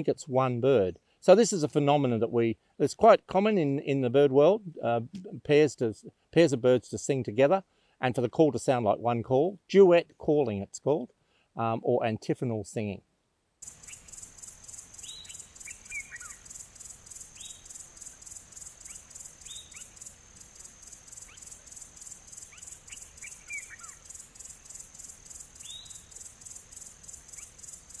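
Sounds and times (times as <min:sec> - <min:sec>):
insect chorus: 0:13.6 - 0:28.0
bird whistled calls: 0:15.0 - 0:16.5, 0:18.8 - 0:20.0, 0:22.4 - 0:24.1, 0:25.6 - 0:26.2.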